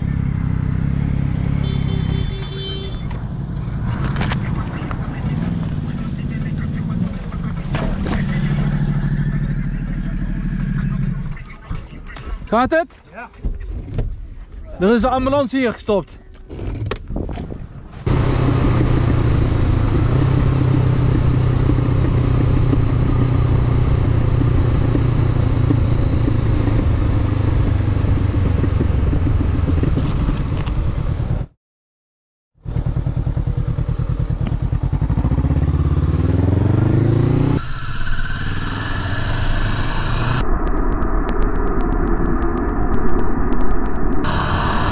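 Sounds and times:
motorcycle engine running: 0.0s - 11.3s, 18.1s - 31.5s, 32.6s - 37.6s
road and wind noise: 0.0s - 31.6s, 32.6s - 44.9s.

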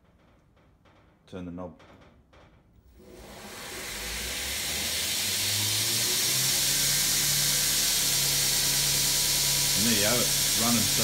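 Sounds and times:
belt grinder hissing: 3.0s - 11.0s
low motor hum rising in pitch: 3.0s - 11.0s.

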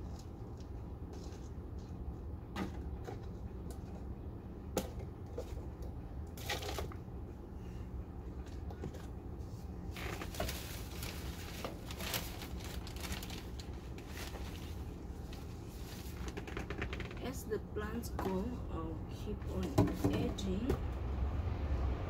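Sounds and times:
steady low hum: 0.0s - 22.0s
plastic bottles rustling and crinkling: 6.3s - 7.0s, 9.8s - 17.3s.

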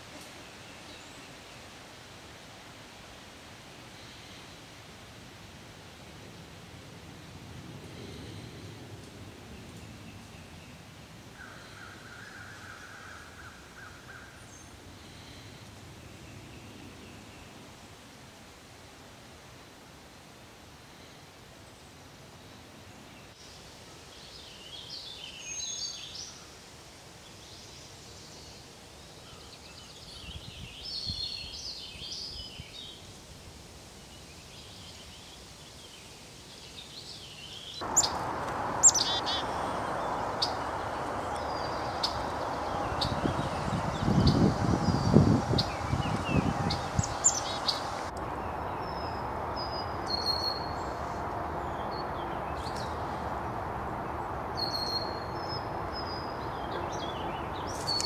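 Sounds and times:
songbirds singing: 34.0s - 58.0s
low rumbling: 37.8s - 57.8s
steady rushing noise: 37.8s - 58.0s.

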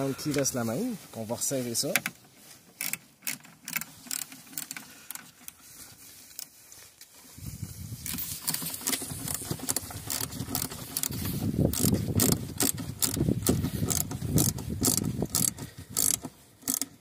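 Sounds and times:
ratchet wrench clicking: 8.1s - 17.0s.

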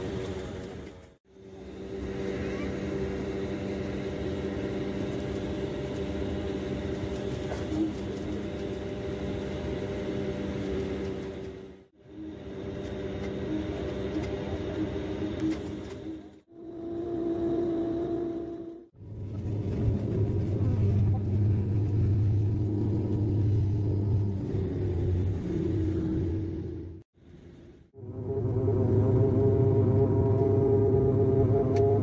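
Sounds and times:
airplane cabin engine drone: 0.0s - 32.0s.

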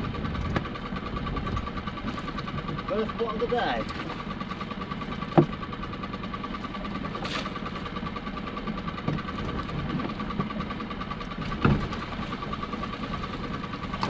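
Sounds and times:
boat engine idling: 0.0s - 14.0s
heavy thump against boat: 11.5s - 12.0s.

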